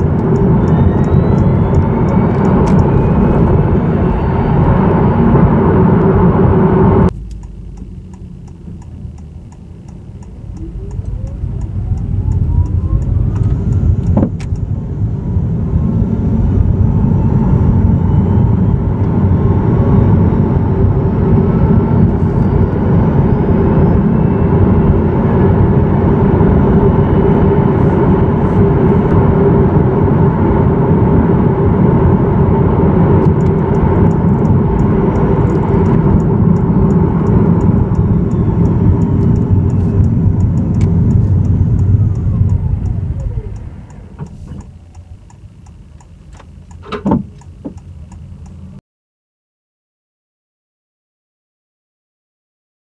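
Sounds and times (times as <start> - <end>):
regular ticking: 0.0 - 3.0, 7.1 - 14.7, 33.2 - 48.8.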